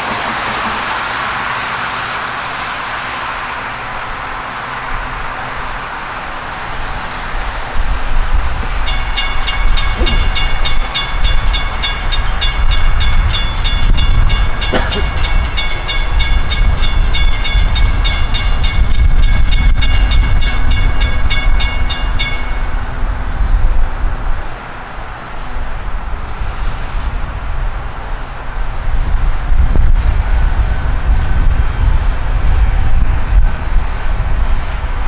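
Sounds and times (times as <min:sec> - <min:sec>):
steady low rumble: 0:00.0 - 0:35.0
crossing warning bell ringing: 0:08.7 - 0:23.6.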